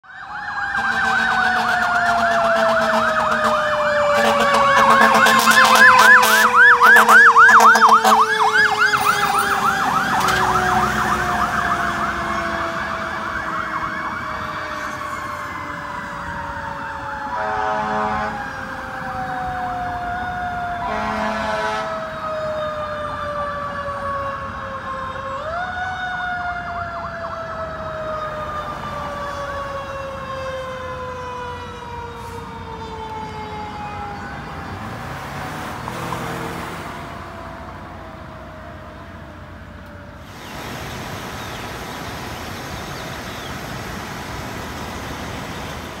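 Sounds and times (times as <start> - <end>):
warbling electronic siren: 0.0 - 34.9
mechanical siren wailing: 0.0 - 35.1
air horn blasts: 0.8 - 8.3, 17.3 - 18.5, 20.8 - 22.1.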